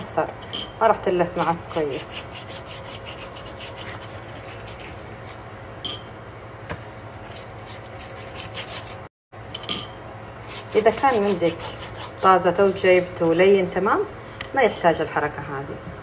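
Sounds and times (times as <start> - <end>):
pastry brush strokes: 1.6 - 5.8, 10.5 - 13.7.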